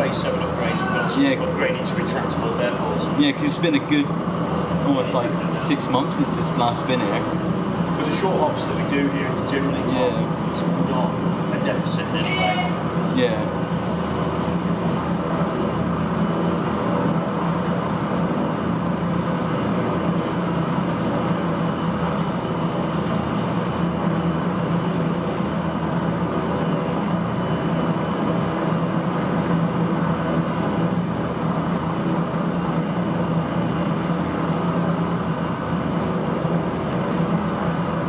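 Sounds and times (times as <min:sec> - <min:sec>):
helicopter engines and rotors idling: 0:00.0 - 0:38.0.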